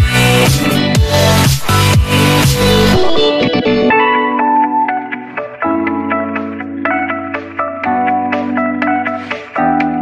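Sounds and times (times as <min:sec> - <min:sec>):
music with heavy bass beat: 0:00.0 - 0:04.0.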